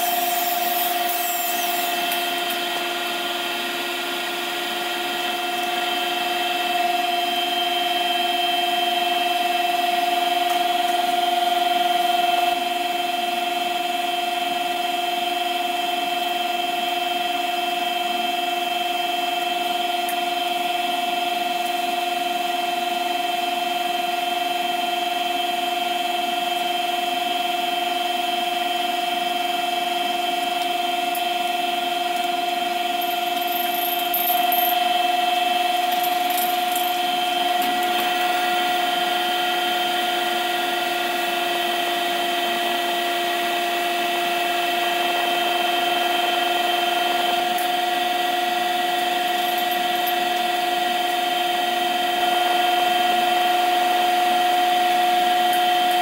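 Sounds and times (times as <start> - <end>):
fume extractor blower humming: 0.0 - 8.2, 34.2 - 56.0.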